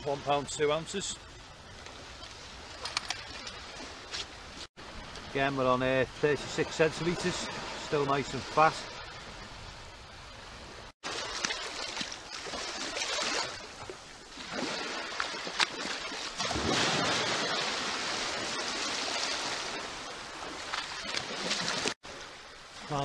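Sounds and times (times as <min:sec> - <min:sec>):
sea water lapping: 0:06.2 - 0:23.0
boots splashing in water: 0:11.0 - 0:22.0.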